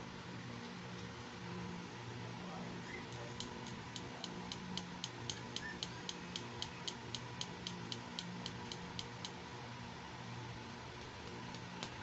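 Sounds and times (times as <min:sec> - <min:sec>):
steady ticking clicks: 0:03.1 - 0:09.4, 0:11.0 - 0:12.0.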